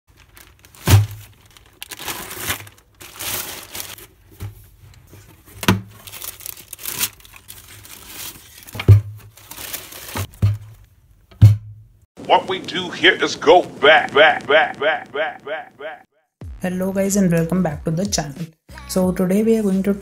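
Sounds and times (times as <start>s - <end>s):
tissue paper rustling: 0.1s - 4.2s, 5.2s - 10.3s.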